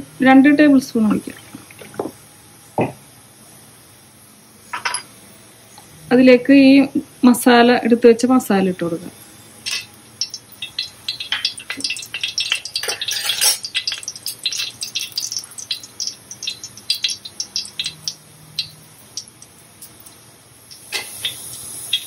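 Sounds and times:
spices crackling in hot oil: 9.4 - 22.0.

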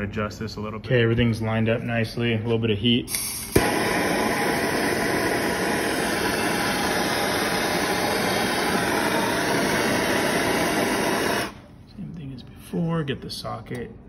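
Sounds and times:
gas torch lighting pop: 3.1 - 11.7
gas torch hissing: 3.1 - 11.8.

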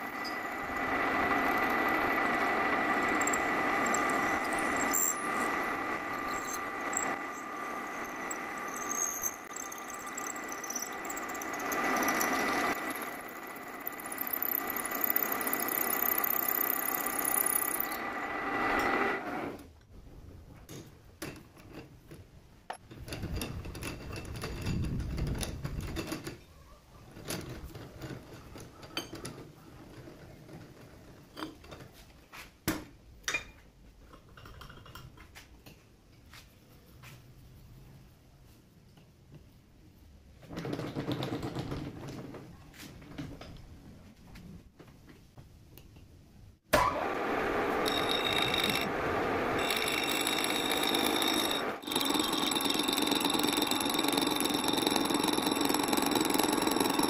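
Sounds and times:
metal lathe whining: 0.0 - 19.6, 46.8 - 57.0
metal parts clicking and knocking: 6.1 - 17.9, 49.6 - 57.0.

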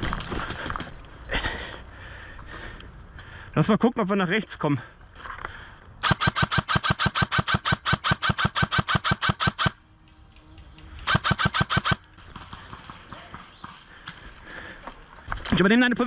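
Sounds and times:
airsoft rifle rapid fire: 6.0 - 9.8, 11.1 - 13.8.

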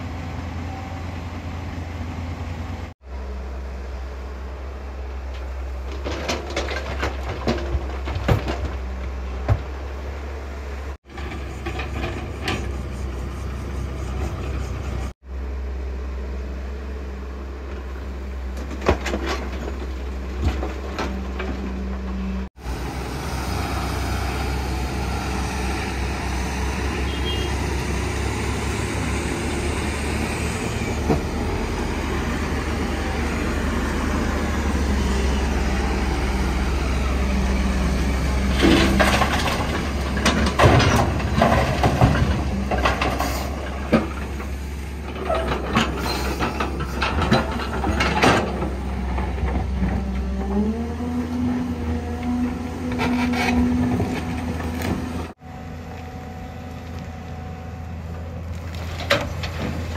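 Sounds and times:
diesel engine drone: 0.0 - 59.9
machinery knocks and clanks: 38.5 - 50.6.

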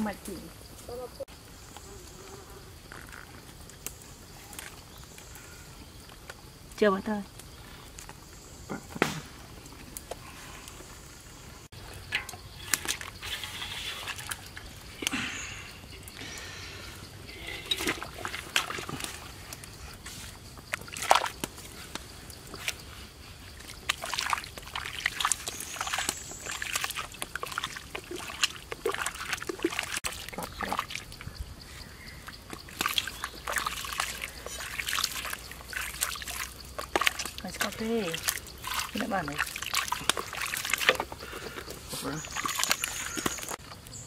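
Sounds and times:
water sloshing in metal pot: 11.8 - 15.0, 17.2 - 31.3, 32.2 - 43.6.

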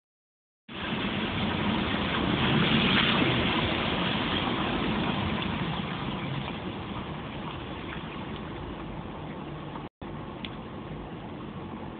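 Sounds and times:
tyres hissing on wet road: 0.7 - 8.8
car engine hum: 0.8 - 11.9.

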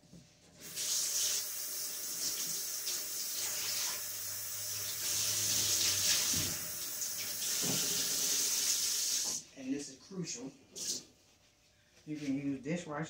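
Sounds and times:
tap water pouring into sink: 0.6 - 9.4.

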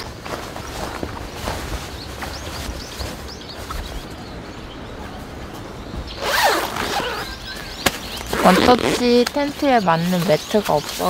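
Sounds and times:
tent zipper being pulled: 6.1 - 7.4, 8.2 - 9.6.

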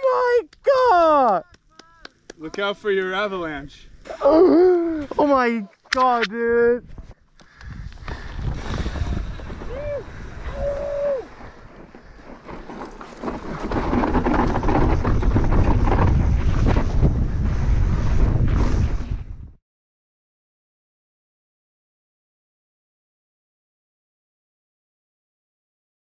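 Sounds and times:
wind buffeting microphone: 6.8 - 19.6
bike tyres over loose dirt: 7.7 - 19.6.

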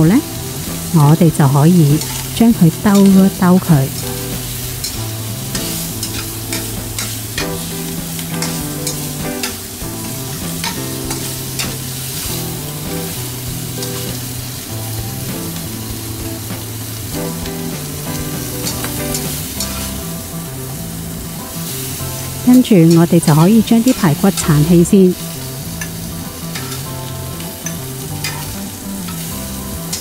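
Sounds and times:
meat sizzling in hot oil: 0.0 - 30.0
metal spatula scraping wok: 1.9 - 12.4, 17.4 - 20.0, 25.7 - 30.0.

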